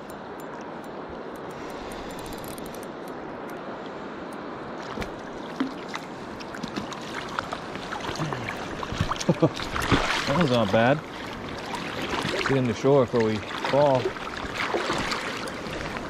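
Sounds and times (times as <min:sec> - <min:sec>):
river current rushing: 0:00.0 - 0:16.0.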